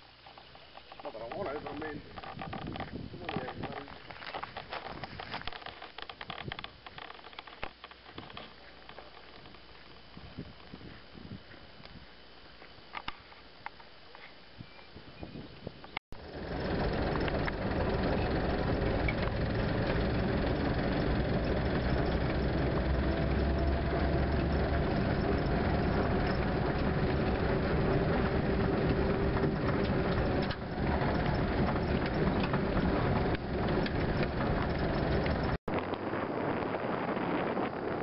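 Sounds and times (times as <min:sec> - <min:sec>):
vehicle body rattling: 0:16.2 - 0:35.6
military vehicle engine drone: 0:16.2 - 0:38.0.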